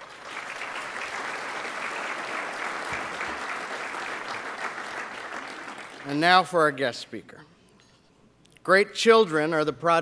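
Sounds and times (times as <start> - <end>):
large audience applauding: 0.0 - 6.2.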